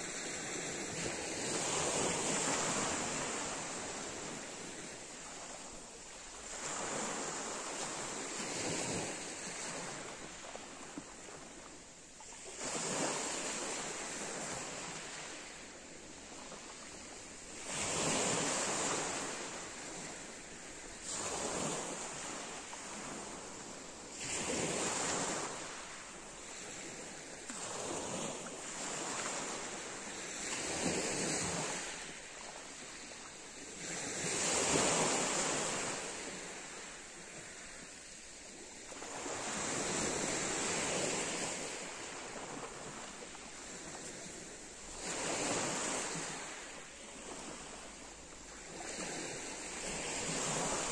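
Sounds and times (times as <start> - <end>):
waves washing up pebble beach: 39.0 - 50.9.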